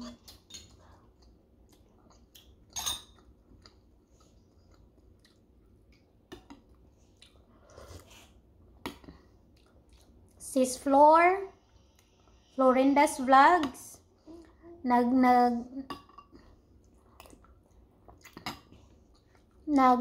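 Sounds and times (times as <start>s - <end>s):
people chewing and eating: 0.0s - 10.4s, 15.9s - 19.7s.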